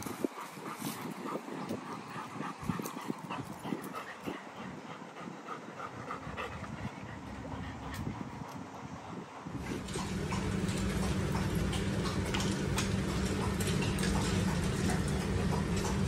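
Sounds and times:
dog panting: 0:00.0 - 0:16.0.

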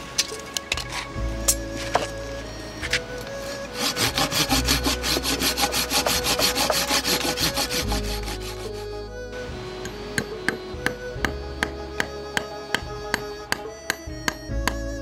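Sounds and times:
hand saw cutting wood: 0:02.9 - 0:08.9.

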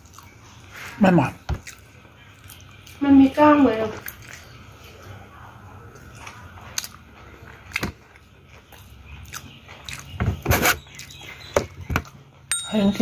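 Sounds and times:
person chewing: 0:00.0 - 0:00.8, 0:01.6 - 0:03.0, 0:04.0 - 0:04.9, 0:05.9 - 0:12.2.

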